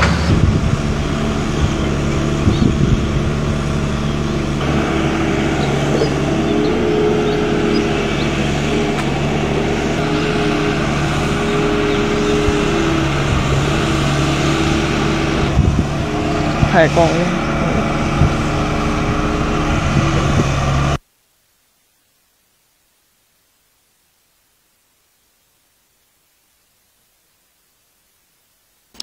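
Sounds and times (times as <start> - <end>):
higher wavering hum: 0.0 - 21.0
road roller diesel engine: 0.0 - 21.0.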